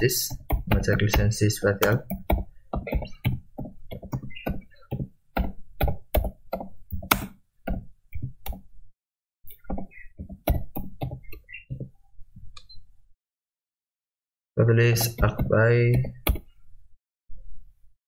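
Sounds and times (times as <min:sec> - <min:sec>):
keyboard keystrokes: 0:05.4 - 0:07.8, 0:15.0 - 0:16.5.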